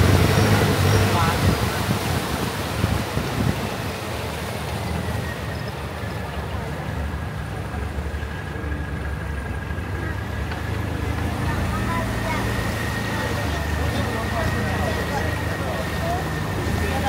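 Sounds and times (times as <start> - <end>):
boat motor humming: 0.0 - 17.0.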